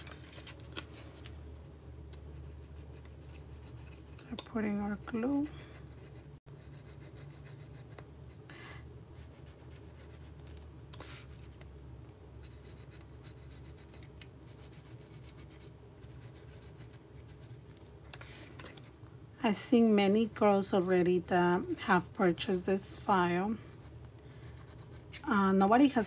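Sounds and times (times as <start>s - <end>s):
soft paper rustles: 0.0s - 1.4s, 17.4s - 19.0s
low steady hum: 0.0s - 26.0s.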